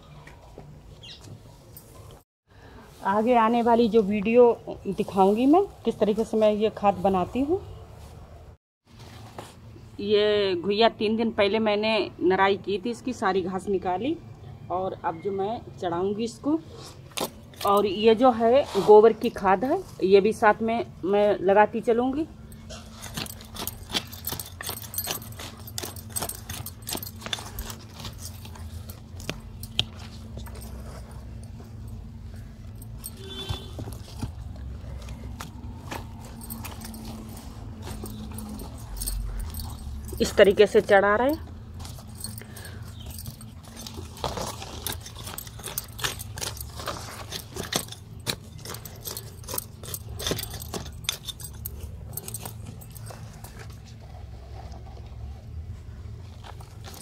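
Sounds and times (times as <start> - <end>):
hand scraping dry soil: 22.7 - 57.0.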